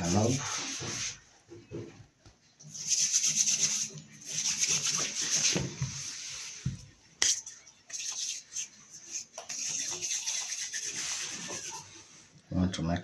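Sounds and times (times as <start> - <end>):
hands rubbing together: 0.0 - 1.2, 2.7 - 6.6, 7.2 - 12.2.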